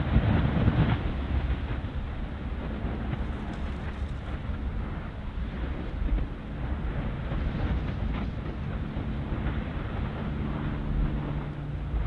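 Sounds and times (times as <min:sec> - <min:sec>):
aircraft droning overhead: 0:00.0 - 0:12.0
low volcanic rumble: 0:00.0 - 0:12.0
steady engine hum: 0:00.0 - 0:12.0.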